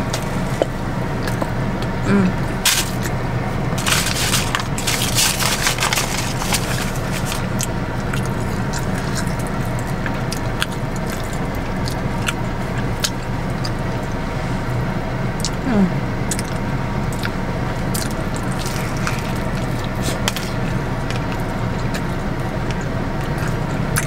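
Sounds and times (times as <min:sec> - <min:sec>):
low hum inside car: 0:00.0 - 0:24.0
crunching of crispy food: 0:02.6 - 0:03.2, 0:03.8 - 0:14.0, 0:16.3 - 0:24.0.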